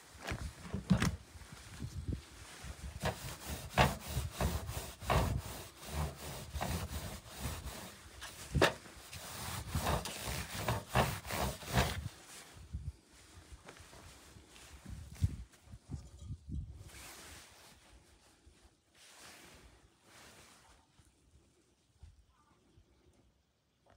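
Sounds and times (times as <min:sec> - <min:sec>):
cloth scrubbed on metal washboard: 0:02.4 - 0:12.4.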